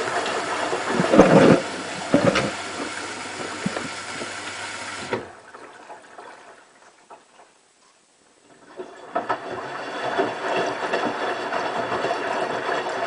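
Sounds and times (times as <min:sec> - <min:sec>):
washing machine hum: 0:00.0 - 0:07.4, 0:08.4 - 0:13.0
water sloshing in washing machine: 0:00.0 - 0:07.4, 0:08.5 - 0:13.0
faint water drips and trickles: 0:00.0 - 0:07.8.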